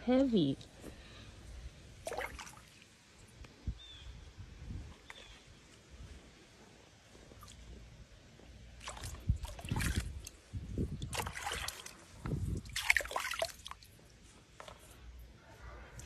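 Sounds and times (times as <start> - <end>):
water splashing and sloshing: 1.9 - 3.4, 7.1 - 15.3.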